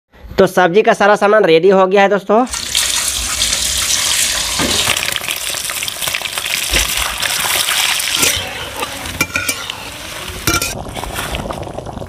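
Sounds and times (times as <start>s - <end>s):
eggs sizzling in hot oil: 2.5s - 12.0s.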